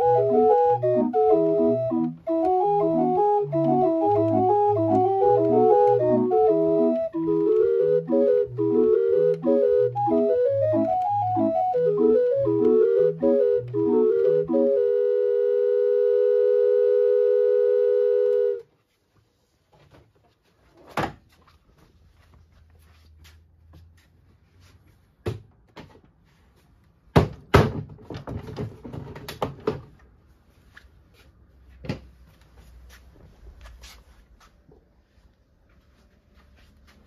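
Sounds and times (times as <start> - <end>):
knocks and clicks: 0.0 - 14.6
hand-cranked organ chord: 0.0 - 18.6.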